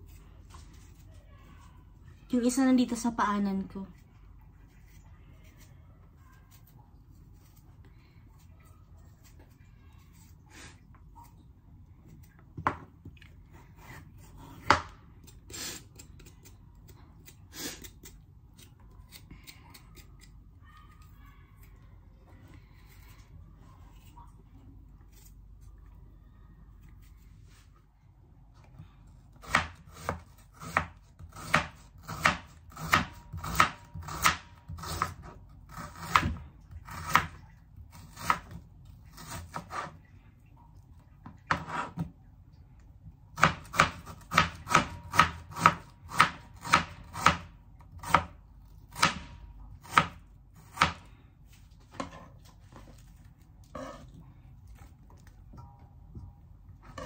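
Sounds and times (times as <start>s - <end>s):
knife chopping on cutting board: 29.4s - 37.3s, 43.4s - 51.1s.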